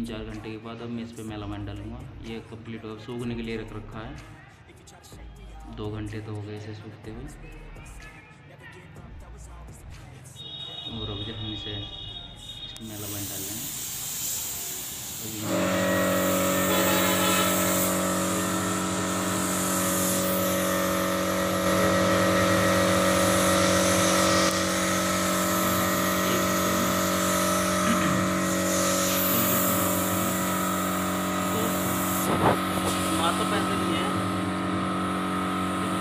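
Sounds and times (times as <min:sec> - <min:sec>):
air compressor motor humming: 0:12.8 - 0:36.0
spray gun hissing: 0:12.8 - 0:36.0.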